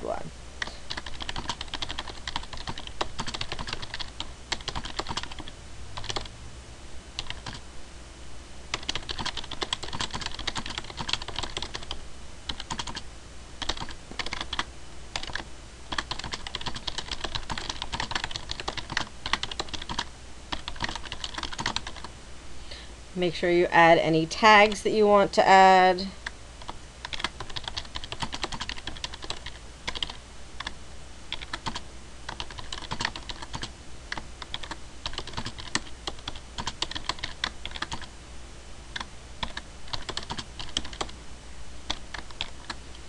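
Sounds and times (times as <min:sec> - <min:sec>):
faint low hum: 0:00.0 - 0:43.0
computer keyboard typing: 0:00.6 - 0:06.3, 0:07.2 - 0:07.6, 0:08.7 - 0:13.0, 0:13.6 - 0:22.1, 0:26.6 - 0:38.1, 0:38.9 - 0:41.2, 0:41.9 - 0:42.8.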